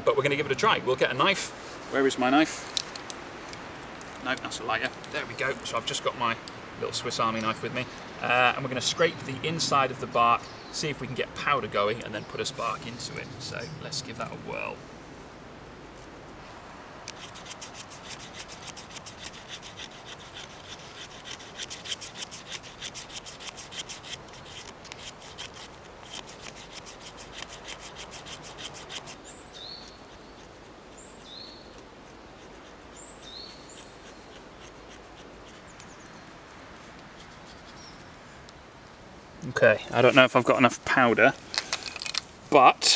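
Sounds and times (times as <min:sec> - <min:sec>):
knife blade scraping bark: 0:17.1 - 0:36.0
bird calling: 0:26.4 - 0:31.8, 0:32.4 - 0:38.5.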